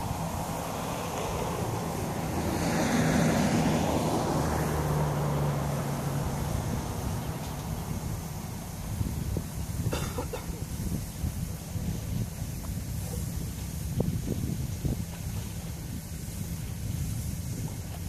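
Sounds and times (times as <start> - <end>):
engine passing by: 0.0 - 9.9.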